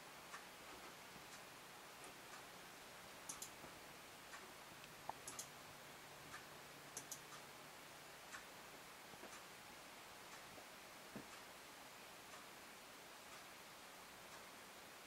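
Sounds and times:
faint room hum: 0:00.0 - 0:15.0
soft sharp clicks: 0:03.3 - 0:03.6, 0:04.3 - 0:05.6, 0:06.3 - 0:07.5.

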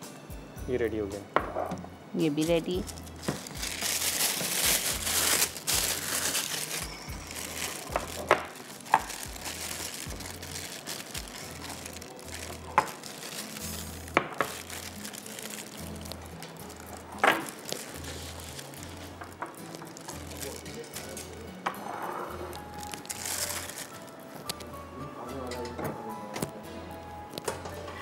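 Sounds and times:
plastic bag crinkling: 0:02.7 - 0:21.4, 0:22.5 - 0:24.7.

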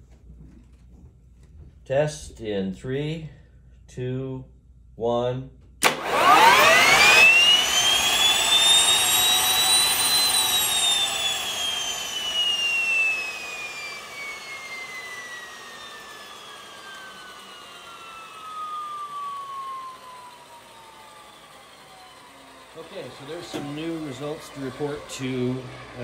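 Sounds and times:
gas turbine engine whine: 0:05.8 - 0:26.0.

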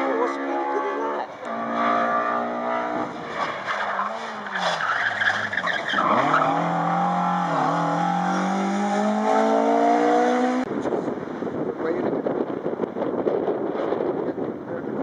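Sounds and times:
rally car engine revving: 0:00.0 - 0:10.7
tyres squealing: 0:03.4 - 0:07.6.

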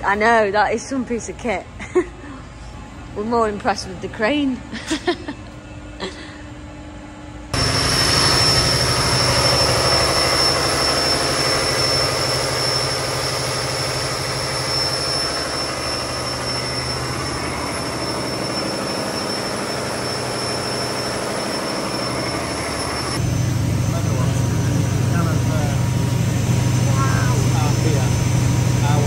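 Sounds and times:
steady high whine: 0:05.1 - 0:29.0
gas engine low drone: 0:06.0 - 0:29.0.

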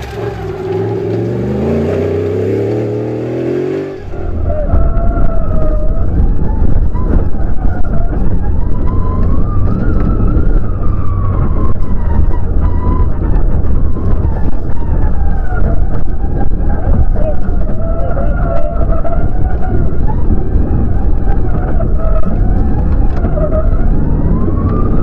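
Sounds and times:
rally car engine revving: 0:00.0 - 0:25.0
tyres rumbling on gravel: 0:00.0 - 0:25.0.

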